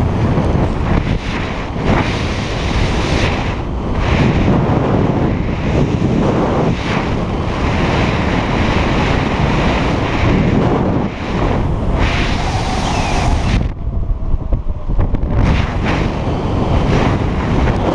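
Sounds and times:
wind rushing over microphone: 0:00.0 - 0:17.9
low rumble: 0:09.2 - 0:17.9.

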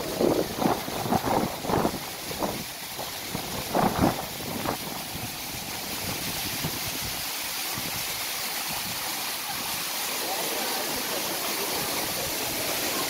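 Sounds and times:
wind on microphone: 0:00.0 - 0:08.1
flowing water rushing: 0:00.0 - 0:13.0.

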